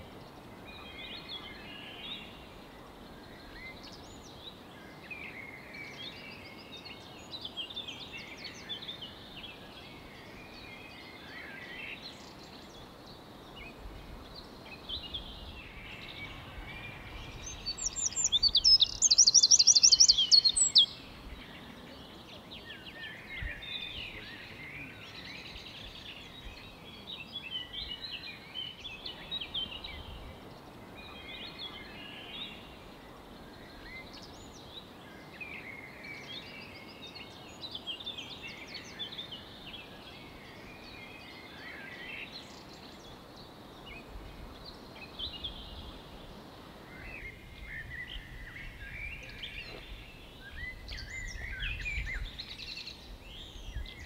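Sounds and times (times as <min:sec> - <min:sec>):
songbirds chirping and warbling: 0:00.0 - 0:54.0.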